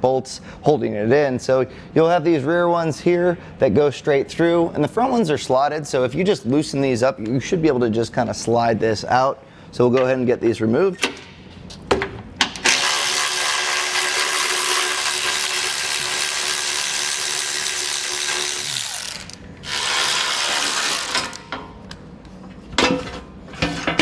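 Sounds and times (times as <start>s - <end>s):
electric ratchet running: 12.6s - 21.6s.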